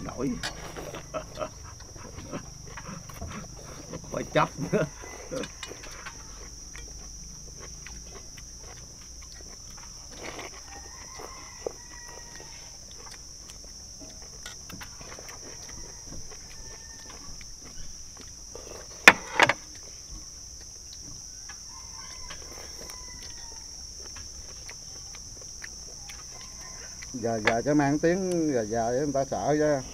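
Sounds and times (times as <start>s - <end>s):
rooster crowing faintly: 0.0s - 7.0s, 10.1s - 13.1s, 14.9s - 17.9s, 21.2s - 23.9s, 25.9s - 28.0s
high insect buzz: 0.0s - 29.9s.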